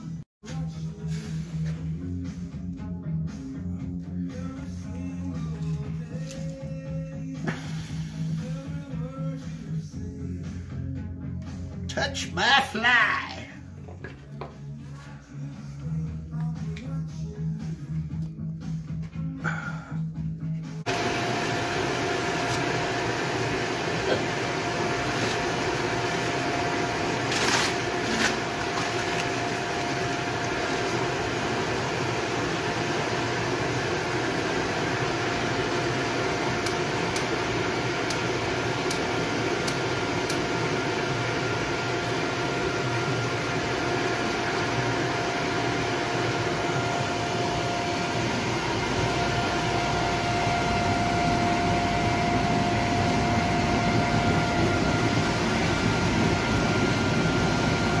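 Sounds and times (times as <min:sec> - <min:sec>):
electric blower whining: 0:20.8 - 0:58.0
forge burner roar: 0:20.8 - 0:58.0.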